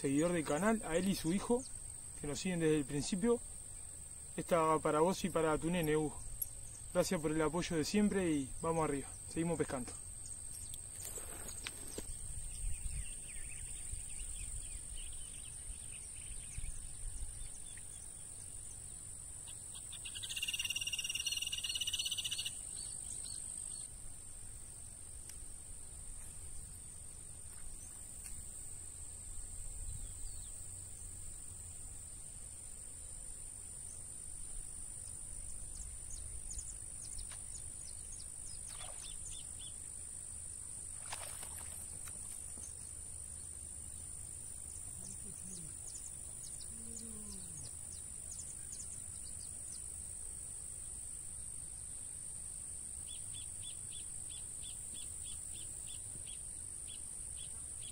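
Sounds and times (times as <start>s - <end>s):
insect trill: 0.0s - 57.9s
bird calling: 19.7s - 22.6s.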